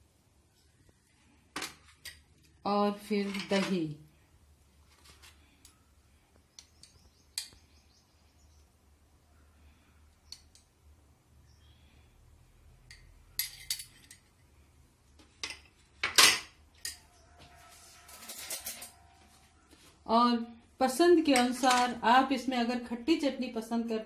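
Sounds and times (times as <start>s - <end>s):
metal spoon and bowls clinking: 12.9s - 14.3s, 15.5s - 17.1s, 18.0s - 19.1s.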